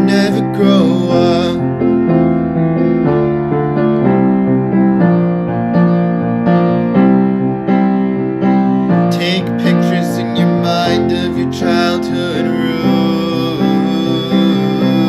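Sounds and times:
wordless singing: 0.0s - 1.7s, 9.2s - 15.0s
piano chords: 0.0s - 15.0s.

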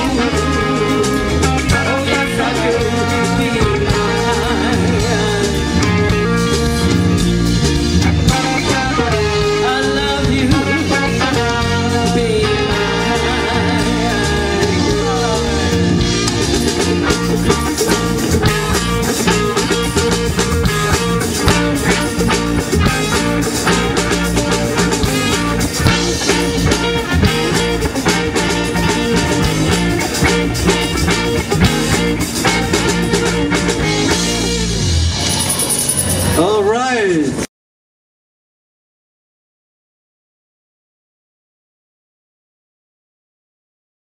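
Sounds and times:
person singing: 0.0s - 6.4s, 8.3s - 15.9s
rock band playing: 0.0s - 37.5s.

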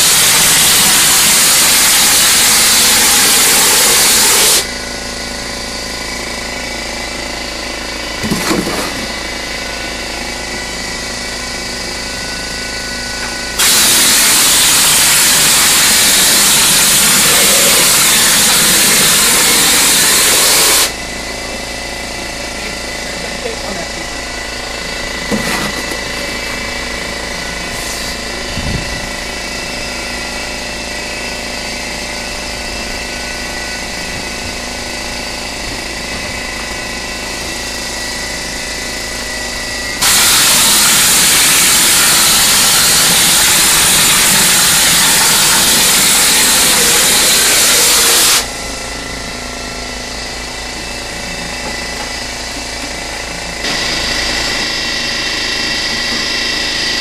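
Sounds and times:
spray gun hissing: 0.0s - 4.7s, 13.6s - 20.9s, 40.0s - 48.5s
air compressor running: 0.0s - 57.0s.

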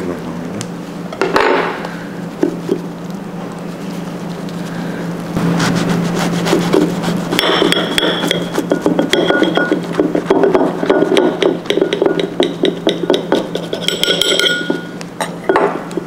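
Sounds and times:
steady low hum: 0.0s - 16.0s
dishes and metal utensils clinking: 7.4s - 15.8s.

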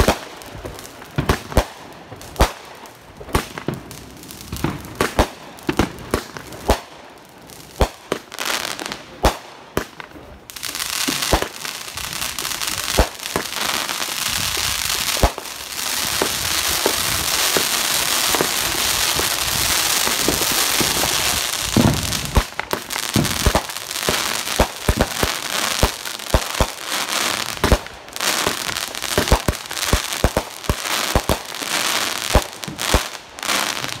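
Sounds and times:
firework shots and bursts: 7.7s - 34.0s
firework crackling hiss: 10.5s - 34.0s.

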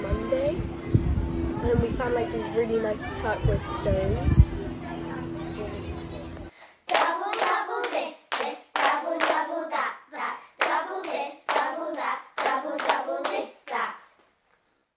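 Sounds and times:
hand claps: 6.9s - 9.4s, 10.6s - 11.7s, 12.4s - 13.8s
children singing: 6.9s - 14.1s.

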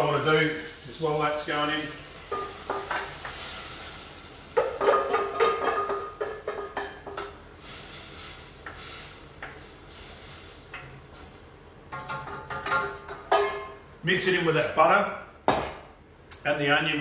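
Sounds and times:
butter sizzling in pot: 0.0s - 11.6s.

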